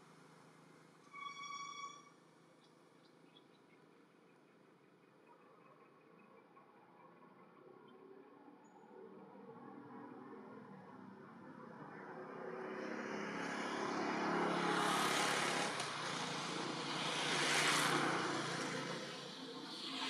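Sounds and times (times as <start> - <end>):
vehicles whooshing past: 12.2 - 20.0.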